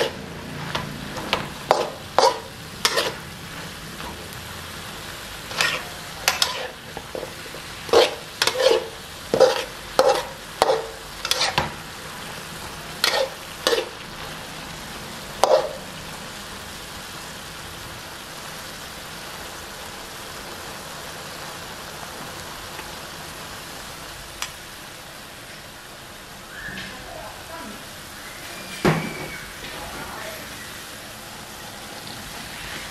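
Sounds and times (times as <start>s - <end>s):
metal spatula scraping wok: 0.0s - 14.4s, 15.4s - 15.9s
food sizzling: 0.0s - 32.9s.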